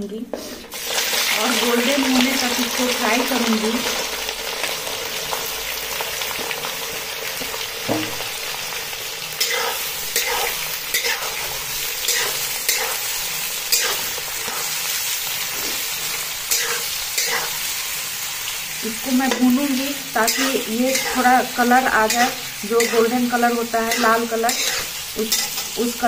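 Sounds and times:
onions sizzling in hot oil: 0.4 - 26.0
spoon scraping a pan: 9.4 - 17.8, 19.2 - 26.0.

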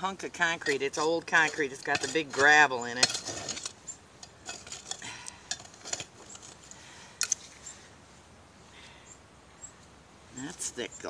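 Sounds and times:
digging tool scraping gravelly soil: 0.0 - 7.8
tool clinking on stones and glass: 0.2 - 7.8.

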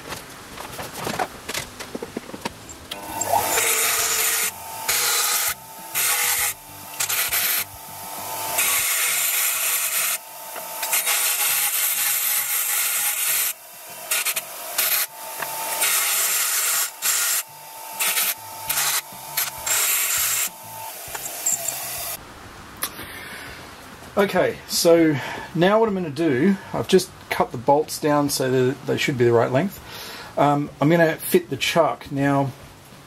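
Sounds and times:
grinder grinding steel bolts: 2.5 - 22.2
grinder motor hum: 2.7 - 22.2.

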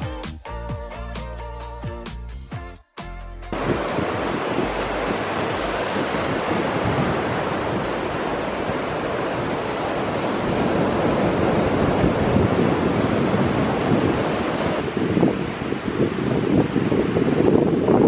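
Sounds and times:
sea surf washing in: 3.5 - 18.0
wind buffeting microphone: 3.6 - 18.0.

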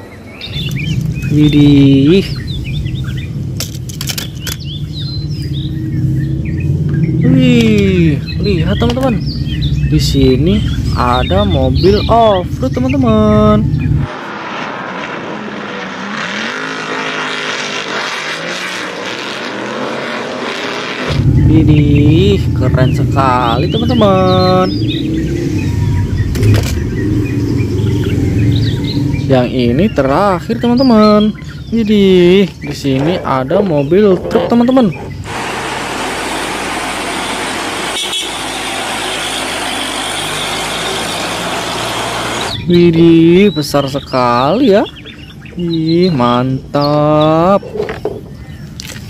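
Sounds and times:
road noise: 0.0 - 49.0
buggy engines revving past: 13.1 - 30.3, 33.8 - 44.0.

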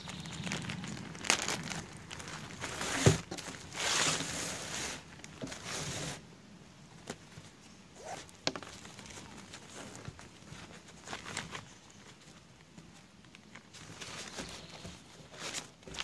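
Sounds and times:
plastic bag crinkling: 0.0 - 6.0, 8.0 - 12.4, 13.3 - 16.0.

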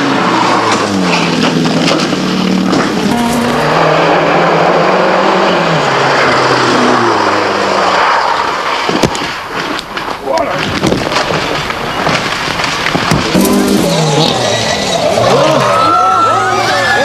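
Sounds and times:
rally car engine revving: 0.0 - 17.0
road and tyre noise: 0.0 - 17.0.

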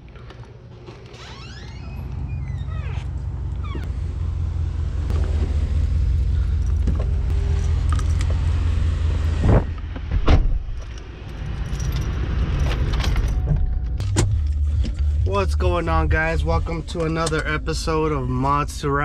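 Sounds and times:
wind rumble on microphone: 9.3 - 9.8
car door opening and shutting: 9.4 - 11.1, 12.0 - 15.0
keys jangling: 10.9 - 13.4.

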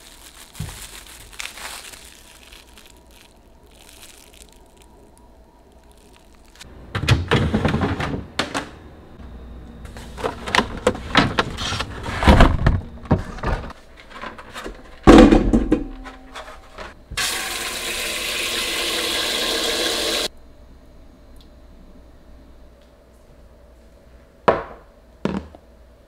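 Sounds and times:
tap water running into a bowl: 17.2 - 20.3.

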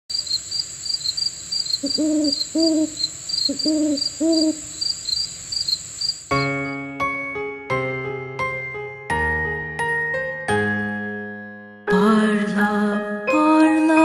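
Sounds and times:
owl hooting: 0.1 - 6.2
crickets chirping: 0.1 - 6.8
gentle tinkling music: 8.5 - 14.0.

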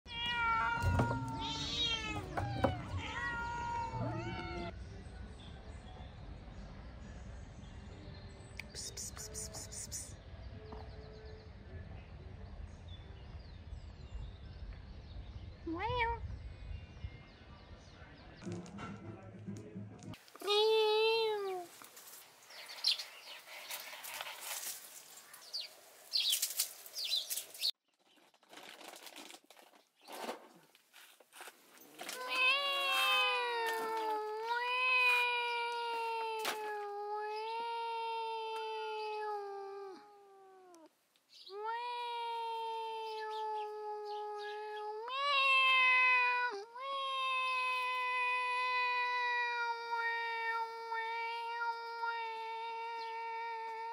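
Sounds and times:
cats meowing: 0.1 - 4.8, 20.4 - 21.8, 32.1 - 40.9, 41.5 - 53.9
kittens scuffling over dry leaves: 20.4 - 30.3, 30.9 - 36.9.

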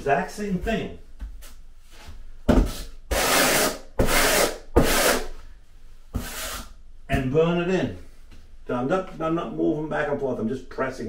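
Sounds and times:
trowel scraping mortar: 3.1 - 5.3.

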